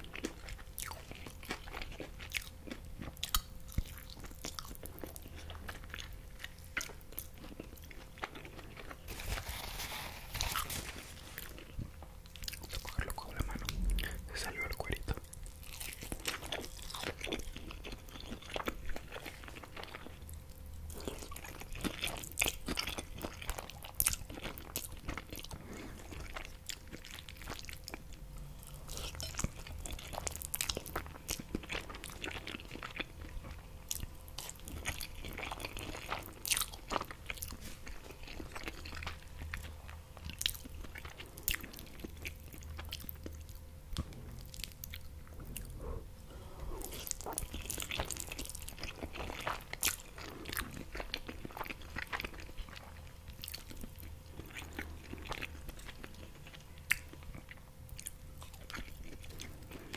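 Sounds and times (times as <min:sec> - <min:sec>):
crunchy bites of fried fish: 0:00.0 - 0:09.0
chewing spaghetti: 0:00.0 - 0:59.9.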